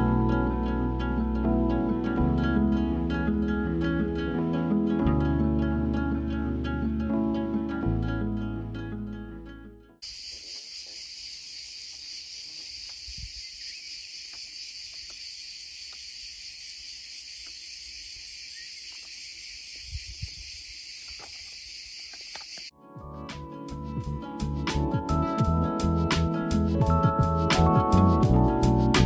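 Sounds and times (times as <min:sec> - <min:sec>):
cicadas buzzing: 0:10.0 - 0:22.7.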